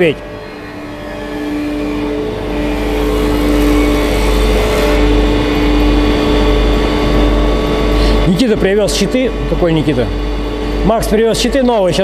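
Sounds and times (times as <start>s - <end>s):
held tones: 0.0s - 6.7s
workshop machine humming: 0.0s - 12.0s.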